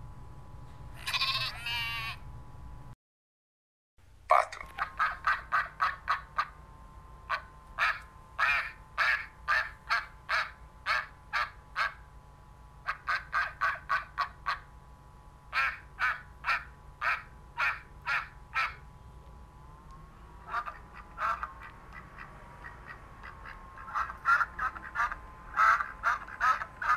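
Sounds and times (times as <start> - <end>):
duck quacking: 4.3 - 6.6, 7.3 - 12.0, 12.9 - 14.6, 15.6 - 18.8, 20.4 - 26.9.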